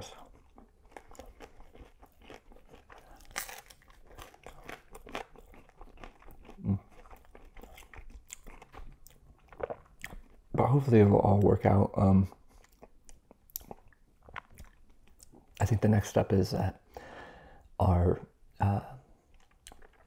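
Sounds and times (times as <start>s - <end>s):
close-up chewing and crunching: 0.0s - 10.5s, 12.4s - 15.6s, 19.2s - 20.0s.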